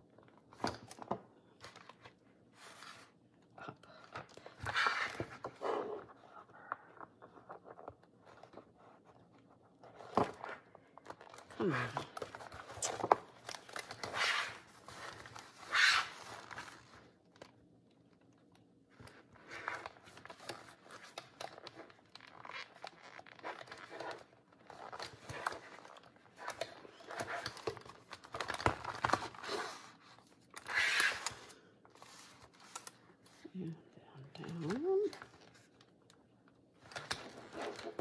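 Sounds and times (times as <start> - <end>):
paper pages rustling: 18.9 - 33.5, 36.8 - 38.0.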